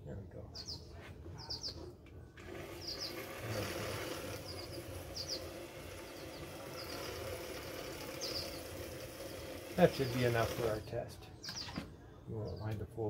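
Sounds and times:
sewing machine running: 0:02.4 - 0:10.8.

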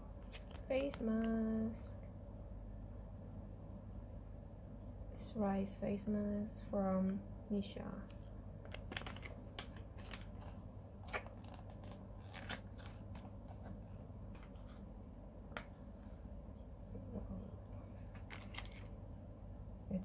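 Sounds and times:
packaging crinkling and ripping: 0:00.3 - 0:01.0, 0:08.7 - 0:13.7, 0:18.2 - 0:18.9.

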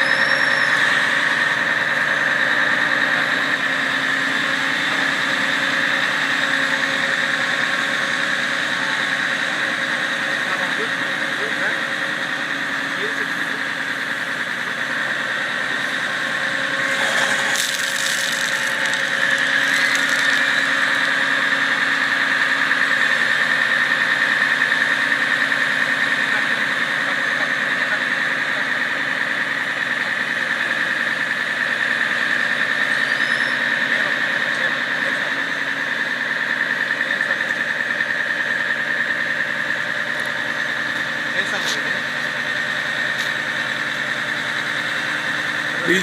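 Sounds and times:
fire truck engine whining: 0:00.0 - 0:46.0.

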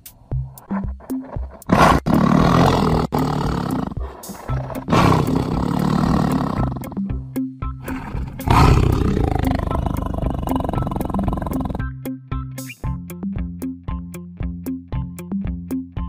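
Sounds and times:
background music low notes: 0:00.0 - 0:16.0
tiger roaring: 0:00.6 - 0:07.0, 0:07.8 - 0:11.8.

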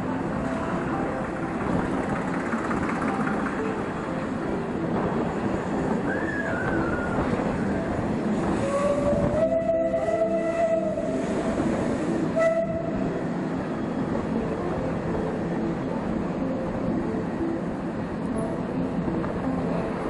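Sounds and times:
train wheels rumbling: 0:00.0 - 0:20.0
train horn: 0:08.4 - 0:13.3.

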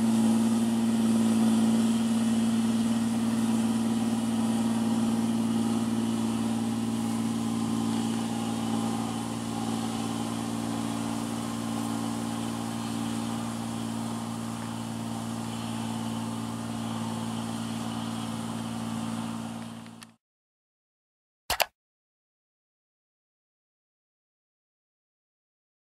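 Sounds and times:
diesel engine running: 0:00.0 - 0:20.2
brief click: 0:21.5 - 0:21.7.

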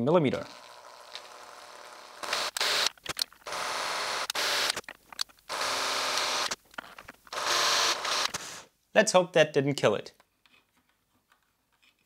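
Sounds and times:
cordless drill running: 0:00.4 - 0:04.8, 0:05.5 - 0:06.6, 0:07.3 - 0:08.6.

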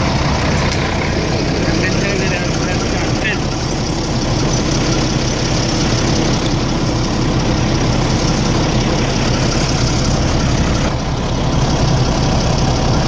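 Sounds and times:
bus diesel engine idling: 0:00.0 - 0:13.0.

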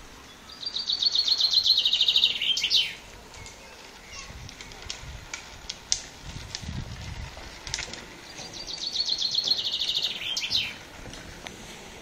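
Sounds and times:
chaffinch singing: 0:00.2 - 0:05.0, 0:08.1 - 0:10.9.

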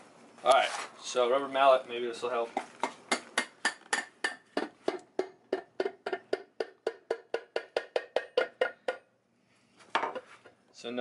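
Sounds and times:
rubber mallet tapping metal: 0:02.8 - 0:09.1.

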